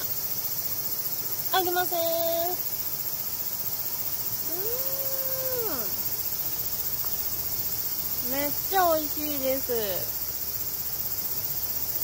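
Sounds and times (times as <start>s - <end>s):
insects chirring: 0.0s - 12.0s
woman humming: 4.4s - 6.0s.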